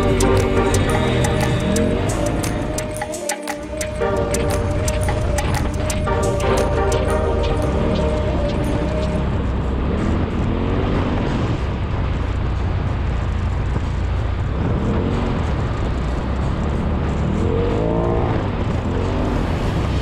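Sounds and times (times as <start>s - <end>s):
engine revving: 0.0s - 20.0s.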